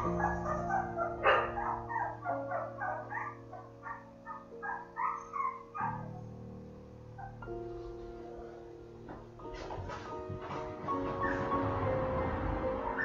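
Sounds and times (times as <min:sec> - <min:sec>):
puppies squeaking and whimpering: 0:00.0 - 0:06.3, 0:07.2 - 0:07.5, 0:09.6 - 0:11.7
soft background music: 0:00.0 - 0:13.0.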